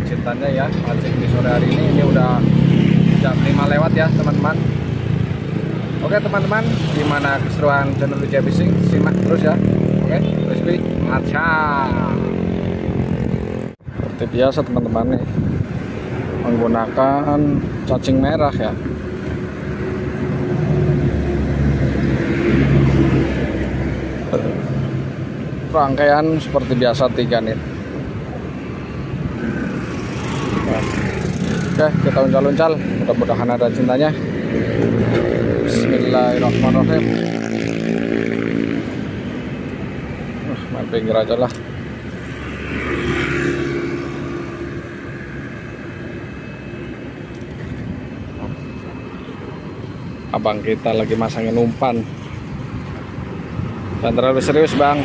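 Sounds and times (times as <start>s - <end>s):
vehicle passing: 0.0s - 13.8s, 15.2s - 55.0s
low rumble of traffic: 0.0s - 55.0s.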